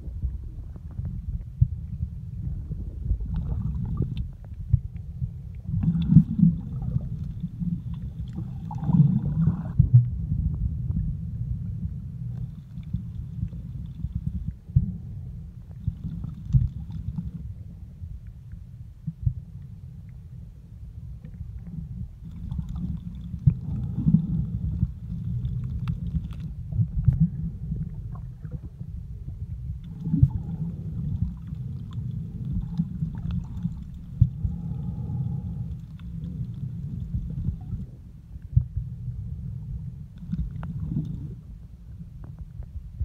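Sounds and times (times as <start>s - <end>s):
underwater rumble of moving water: 0.0s - 43.0s
sharp clicks and crackles: 25.3s - 27.2s.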